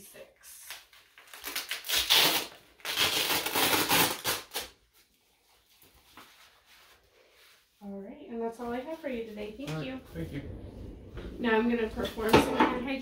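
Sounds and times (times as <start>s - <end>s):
velcro ripping open: 0.6s - 4.8s.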